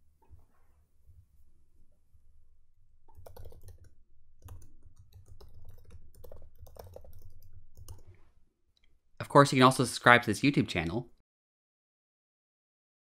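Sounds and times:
keyboard typing: 0:03.1 - 0:08.2.

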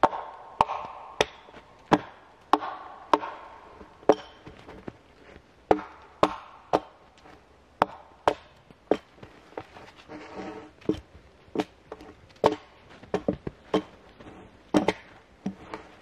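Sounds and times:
axe chopping firewood: 0:00.0 - 0:05.0, 0:05.7 - 0:09.7, 0:10.8 - 0:14.1, 0:14.7 - 0:15.9.

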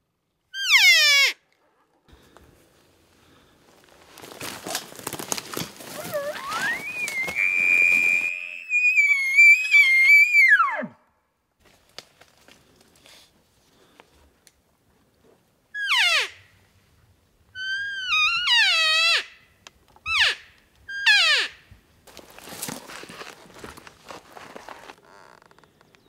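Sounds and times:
elk bugling: 0:05.9 - 0:10.9.

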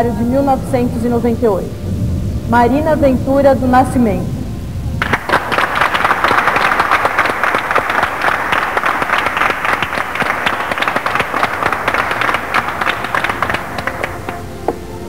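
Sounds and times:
crowd applauding: 0:05.0 - 0:15.0.

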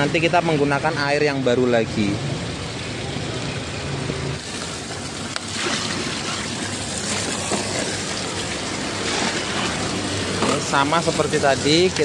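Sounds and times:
water running in washing machine: 0:04.4 - 0:12.0.

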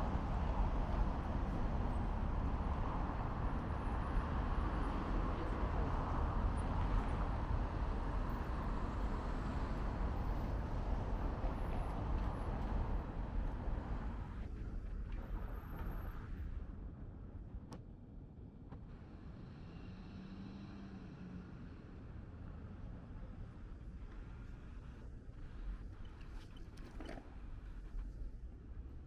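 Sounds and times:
street traffic rumble: 0:00.0 - 0:17.6, 0:18.4 - 0:29.0.

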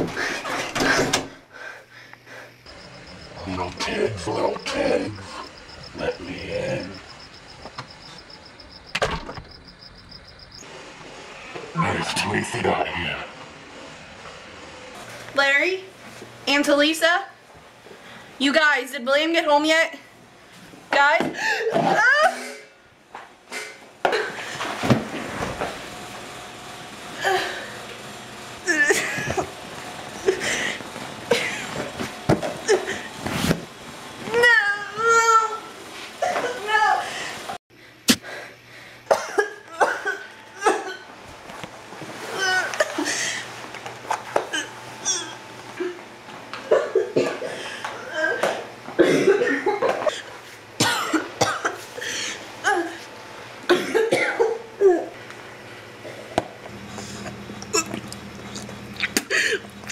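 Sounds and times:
woman wailing and sobbing: 0:21.5 - 0:22.7, 0:39.6 - 0:41.1, 0:42.2 - 0:43.5, 0:52.6 - 0:53.0
woman coughing: 0:39.1 - 0:41.1, 0:46.7 - 0:50.2, 0:50.8 - 0:53.0, 0:53.7 - 0:55.1.

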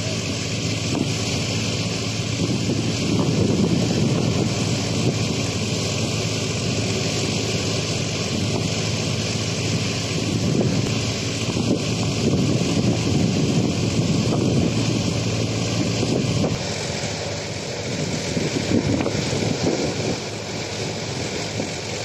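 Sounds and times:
tractor engine running: 0:00.0 - 0:22.0
wind buffeting microphone: 0:02.1 - 0:07.0, 0:09.7 - 0:16.8, 0:17.8 - 0:22.0.

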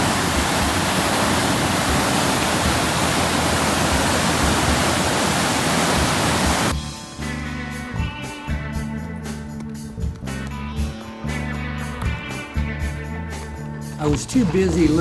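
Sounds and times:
water rushing roar: 0:00.0 - 0:06.7
guitar music: 0:06.5 - 0:15.0.

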